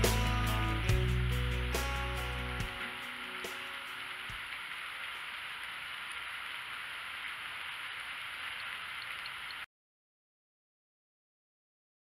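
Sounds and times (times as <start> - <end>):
steady rain hiss: 0.0 - 9.7
faint drips: 4.1 - 9.7.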